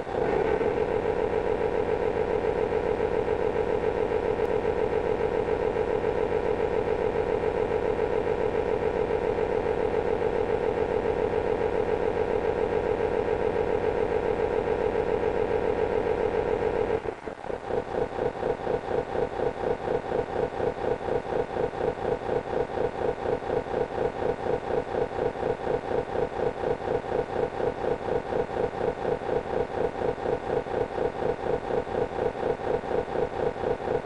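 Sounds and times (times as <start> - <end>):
diesel engine sound from small speaker: 0.0 - 34.0.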